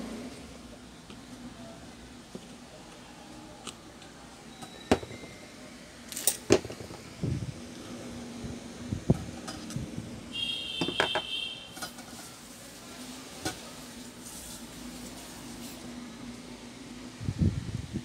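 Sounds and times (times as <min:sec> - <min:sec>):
high-pitched metallic squeak: 0:04.5 - 0:05.5.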